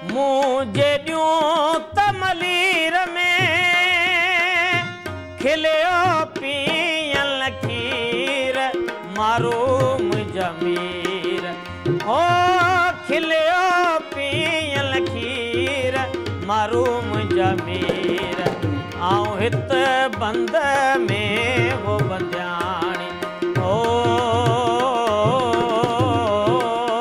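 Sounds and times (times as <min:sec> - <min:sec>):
harmonium: 0:00.0 - 0:27.0
man singing folk song: 0:00.0 - 0:27.0
hand drum: 0:17.1 - 0:19.8.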